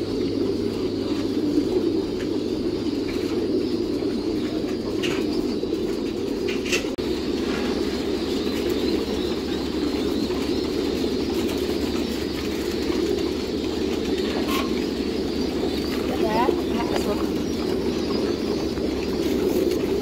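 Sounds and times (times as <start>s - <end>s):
pigeons cooing: 0.0s - 20.0s.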